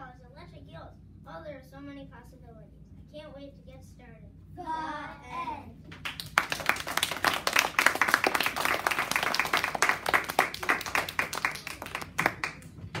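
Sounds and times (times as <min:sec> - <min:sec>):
audience applauding: 0:06.0 - 0:12.8.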